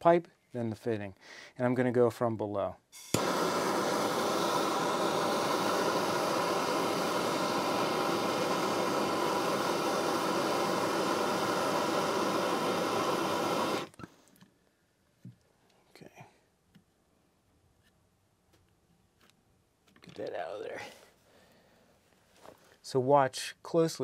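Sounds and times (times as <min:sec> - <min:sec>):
gas torch hissing: 0:03.0 - 0:14.1.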